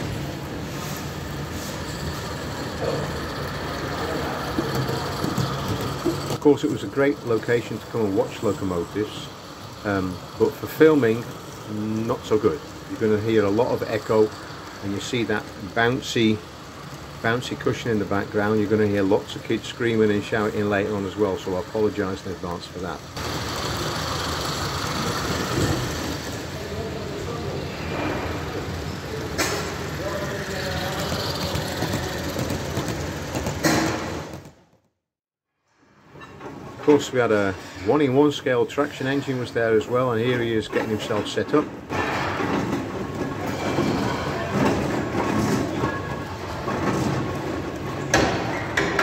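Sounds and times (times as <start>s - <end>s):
model steam locomotive running: 0.0s - 33.6s.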